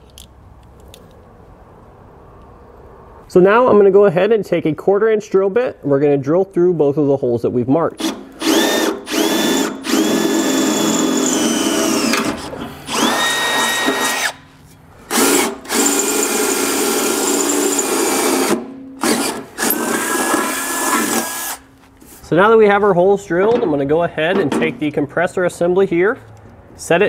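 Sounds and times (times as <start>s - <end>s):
cordless drill drilling steel: 8.0s - 14.4s, 15.1s - 21.6s.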